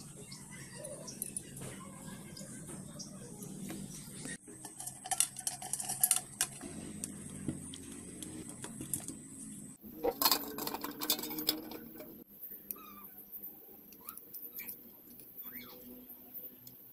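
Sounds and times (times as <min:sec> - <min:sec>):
appliance parts clicking and clattering: 0:04.5 - 0:06.6, 0:09.9 - 0:12.2.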